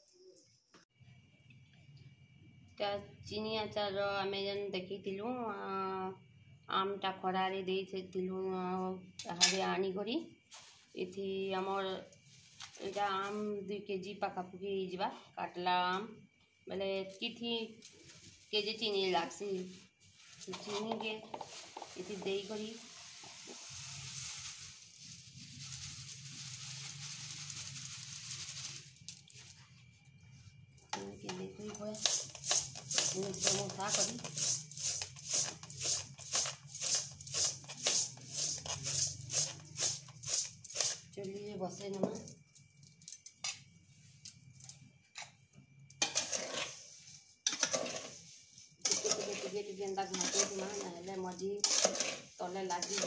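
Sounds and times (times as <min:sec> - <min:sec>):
sugar pouring: 0:21.3 - 0:29.4, 0:31.9 - 0:41.1, 0:46.0 - 0:50.9, 0:51.6 - 0:53.0
plastic bag crinkling: 0:23.7 - 0:29.5
hand mixing fruit in bowl: 0:31.8 - 0:41.1, 0:47.5 - 0:53.0.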